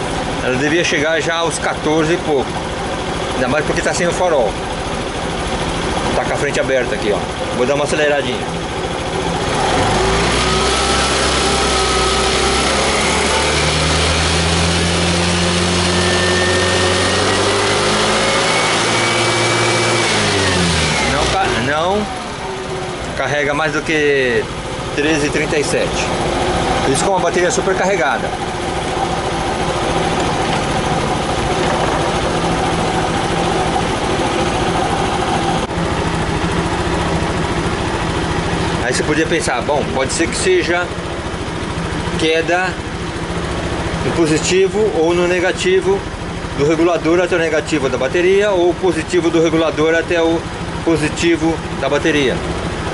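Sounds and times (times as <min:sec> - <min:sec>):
scooter engine running: 0:00.0 - 0:52.9.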